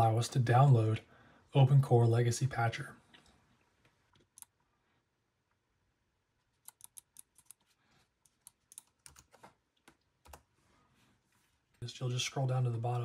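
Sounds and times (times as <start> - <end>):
faint keyboard keystrokes: 6.6 - 10.5.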